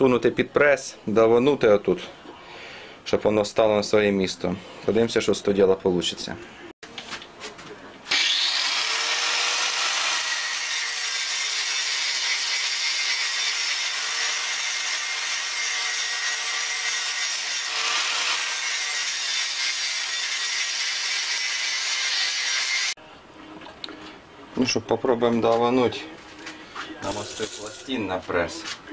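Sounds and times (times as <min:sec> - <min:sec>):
angle grinder grinding steel: 0:08.1 - 0:23.0, 0:27.0 - 0:28.2.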